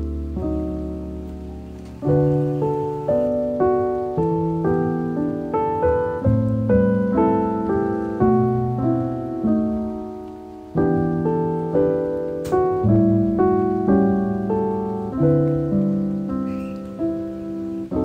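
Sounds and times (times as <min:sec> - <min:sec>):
soft piano music: 0:00.0 - 0:18.0.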